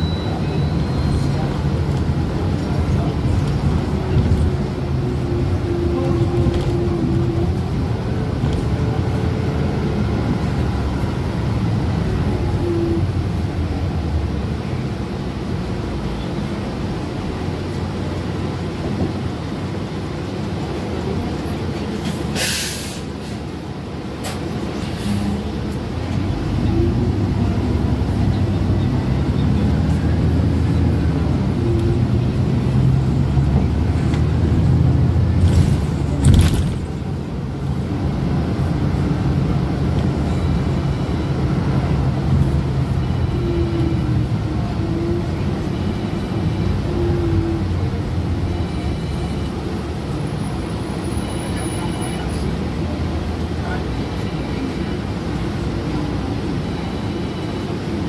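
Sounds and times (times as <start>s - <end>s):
bus engine and road rumble: 0.0s - 58.0s
air brake hiss: 22.1s - 23.4s.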